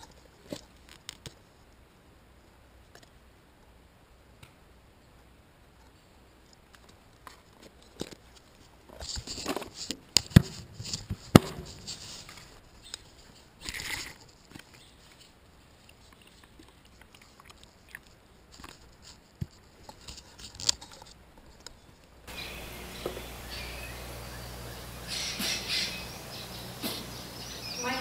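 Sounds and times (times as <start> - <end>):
rustling: 5.7 - 28.0
short hiss: 22.3 - 27.5.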